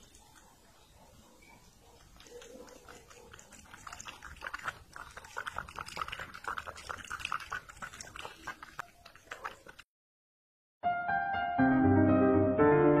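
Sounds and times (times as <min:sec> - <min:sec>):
cat licking wet clicks: 0:02.0 - 0:09.8.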